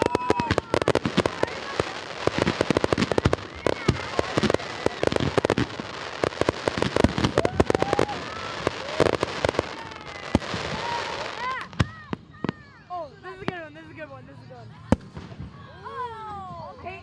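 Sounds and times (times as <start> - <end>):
fireworks bangs and crackling: 0.0 - 17.0.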